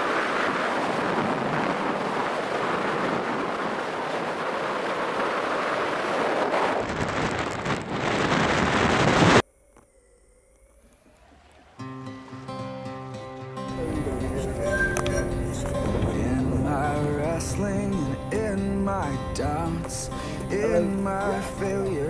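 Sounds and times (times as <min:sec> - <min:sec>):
surf on the shore: 0:00.0 - 0:09.4
wind buffeting microphone: 0:00.0 - 0:09.4, 0:13.8 - 0:19.8.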